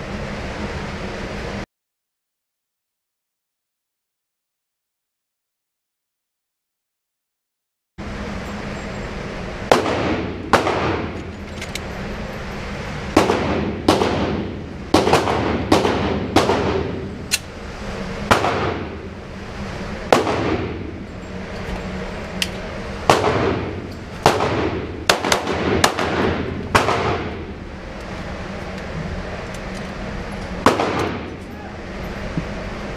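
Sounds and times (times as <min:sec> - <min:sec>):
low hum: 0:08.0 - 0:32.9.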